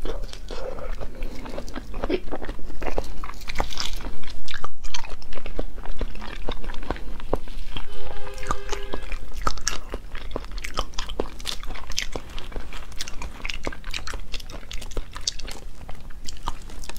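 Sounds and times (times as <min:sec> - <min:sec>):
chewing and crunching shrimp: 0:00.0 - 0:16.9
steady pitched tone: 0:07.5 - 0:09.8.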